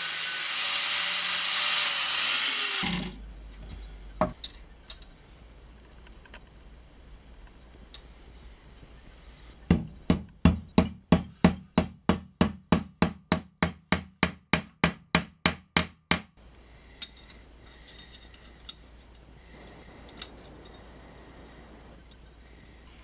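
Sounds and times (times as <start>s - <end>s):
hammer striking steel pin: 9.7s - 16.4s.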